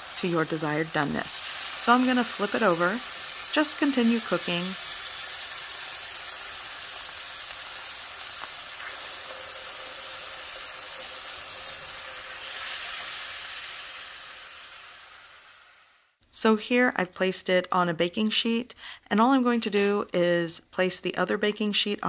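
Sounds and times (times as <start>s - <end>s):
steak sizzling in hot oil: 0.0s - 16.2s.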